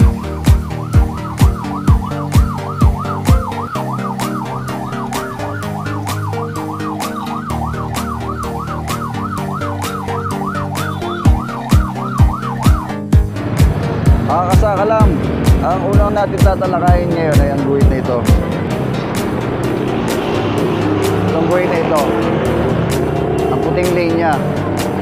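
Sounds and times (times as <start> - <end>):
ambulance siren yelping: 0.0 - 13.2
background music with beat: 0.0 - 25.0.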